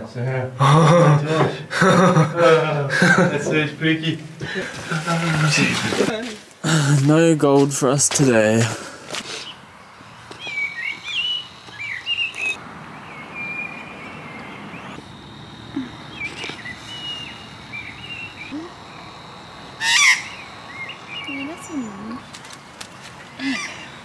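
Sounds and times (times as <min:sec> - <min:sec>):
magpies warbling chirps: 0:09.3 - 0:24.0
harsh bird squawk: 0:19.8 - 0:22.2.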